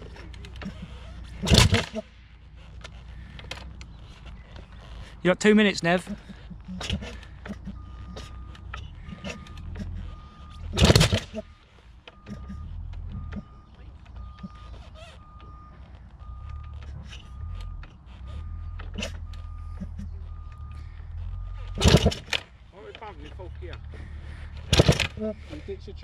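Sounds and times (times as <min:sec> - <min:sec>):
dirt bike being kicked over: 0:00.0 - 0:25.8
reversing beeper: 0:05.4 - 0:22.3.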